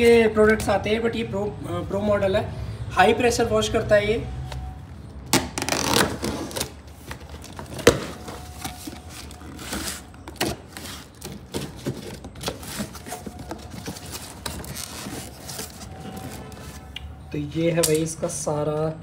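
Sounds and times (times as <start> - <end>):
cutter slitting packing tape: 5.3 - 6.8
cardboard and paper rustling: 5.6 - 16.9.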